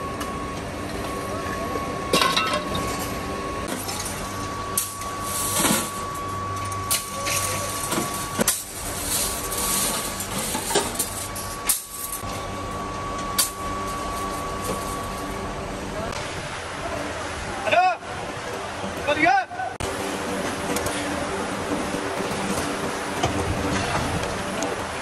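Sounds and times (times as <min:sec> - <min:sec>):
scrap steel clanking into wheelbarrow: 0:04.8 - 0:06.1, 0:06.9 - 0:12.2.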